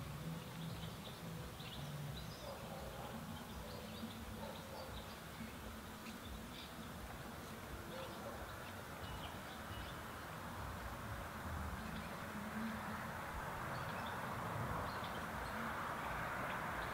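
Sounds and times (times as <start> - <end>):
steady hiss and low rumble: 0.0 - 16.9.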